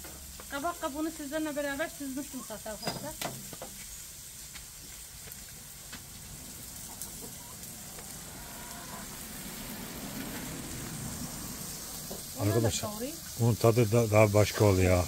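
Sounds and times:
oil sizzling in a frying pan: 0.0s - 15.0s
hen clucking: 6.9s - 9.2s.

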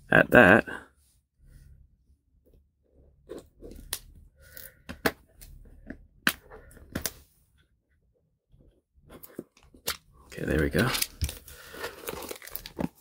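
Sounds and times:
plastic wrap crackling: 10.7s - 13.0s.

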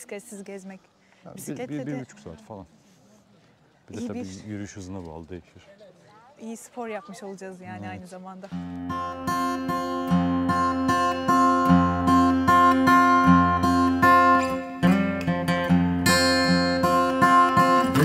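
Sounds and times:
acoustic guitar picking: 7.7s - 18.0s.

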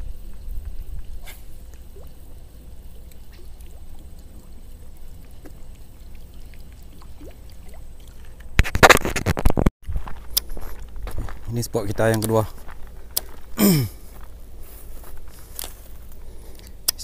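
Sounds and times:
low wind rumble: 0.0s - 6.0s.

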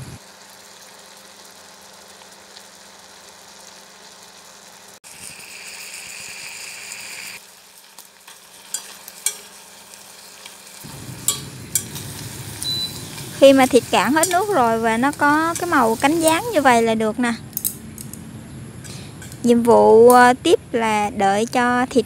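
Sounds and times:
meat sizzling in a pot: 0.0s - 17.0s
chopsticks clicking against pot: 17.5s - 18.2s.

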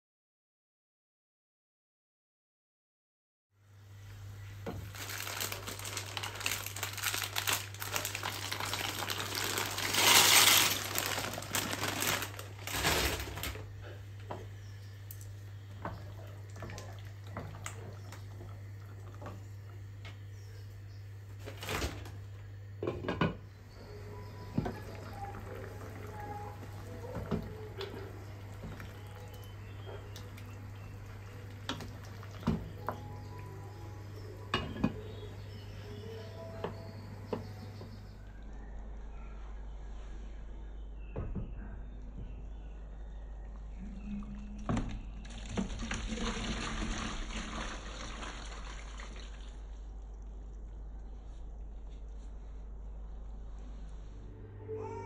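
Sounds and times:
steady low hum: 3.6s - 46.0s, 47.7s - 55.0s
dishes and utensils clinking: 34.5s - 35.2s
water running into sink: 44.6s - 49.7s.

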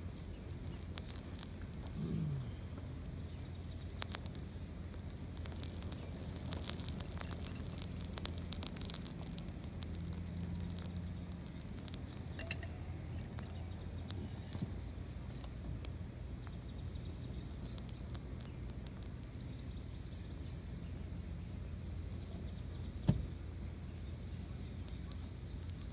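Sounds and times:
fire hissing and crackling: 0.0s - 25.9s
low steady rumble: 0.0s - 25.9s.

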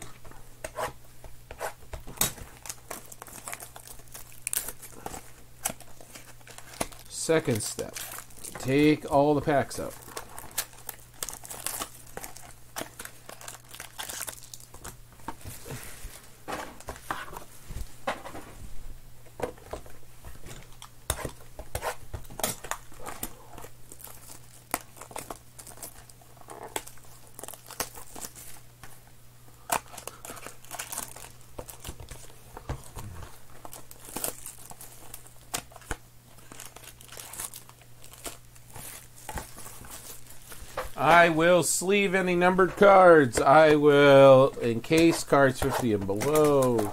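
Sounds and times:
faint steady hum: 0.0s - 46.9s
foil packs crinkling and rustling: 1.9s - 17.6s, 19.6s - 46.9s
foil tearing: 2.3s - 14.8s, 21.2s - 28.6s, 29.7s - 32.3s, 33.0s - 42.3s, 45.0s - 46.9s.

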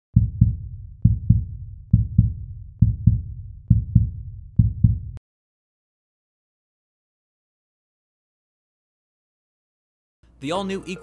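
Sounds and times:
heartbeat double thumps: 0.1s - 5.2s.

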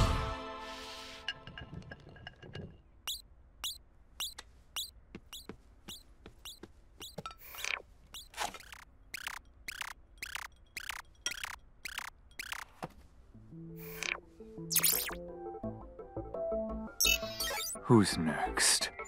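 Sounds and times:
footsteps on wooden floor: 4.2s - 7.3s.

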